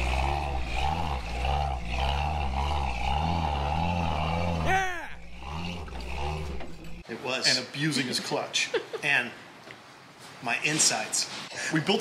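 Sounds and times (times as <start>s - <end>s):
truck engine labouring: 0.0s - 7.0s.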